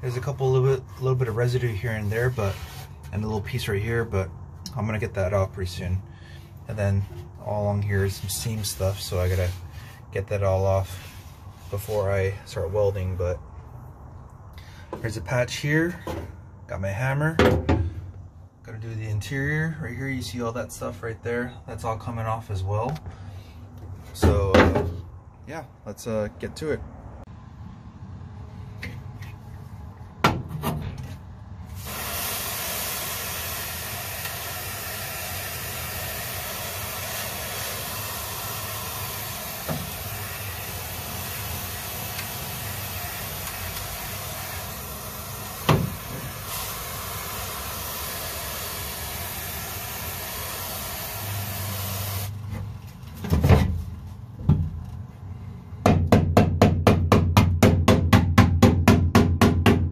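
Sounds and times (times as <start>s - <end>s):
compressed air spraying hiss: 31.7s - 52.4s.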